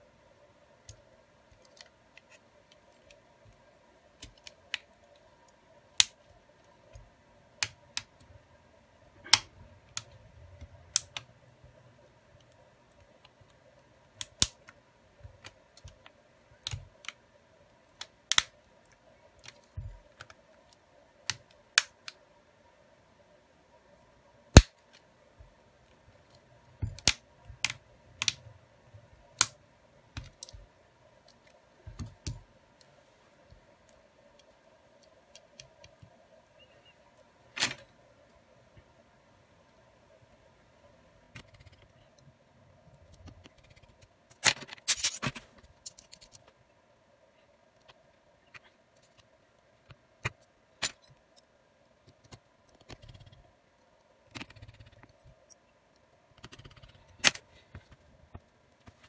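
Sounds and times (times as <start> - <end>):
sharp plastic clicks: 26.3 - 28.5.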